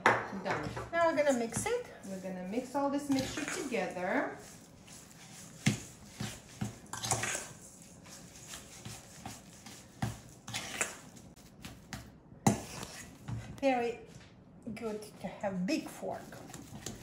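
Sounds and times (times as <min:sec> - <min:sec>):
metal fork scraping steel bowl: 0:03.1 - 0:05.5, 0:06.9 - 0:09.7, 0:10.4 - 0:11.2.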